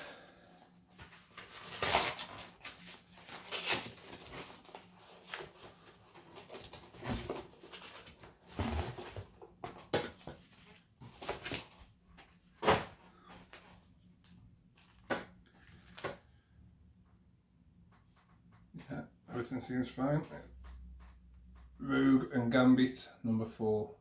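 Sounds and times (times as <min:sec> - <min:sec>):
cardboard rustling and crinkling: 0:00.7 - 0:16.2
sharp cardboard crackle: 0:01.1 - 0:09.2.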